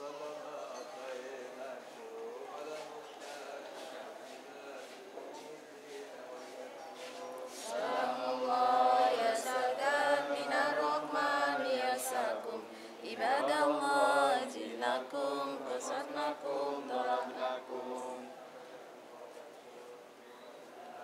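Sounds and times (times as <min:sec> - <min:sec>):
women chanting prayer in unison: 0:07.3 - 0:18.8.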